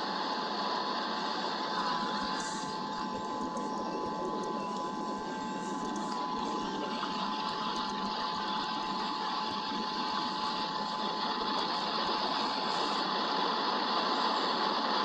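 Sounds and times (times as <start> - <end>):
steady rain hiss: 0.0 - 4.5, 5.1 - 15.0
thin electronic tone: 1.7 - 11.9.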